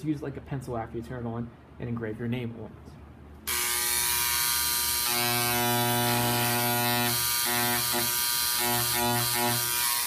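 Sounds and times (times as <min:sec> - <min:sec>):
electric engraver buzzing on metal: 0:03.5 - 0:10.0.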